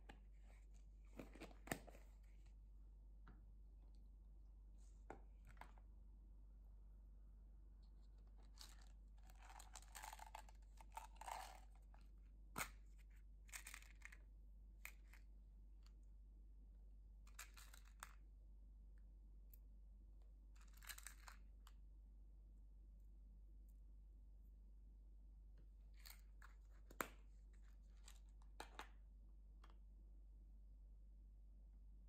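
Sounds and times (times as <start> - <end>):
plastic cup crinkling and clicking: 8.4 - 12.0.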